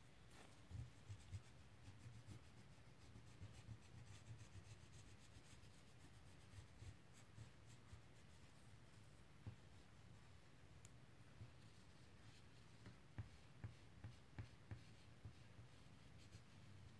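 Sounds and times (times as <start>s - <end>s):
crayon scribbling on paper: 0.6s - 8.5s, 11.6s - 16.7s.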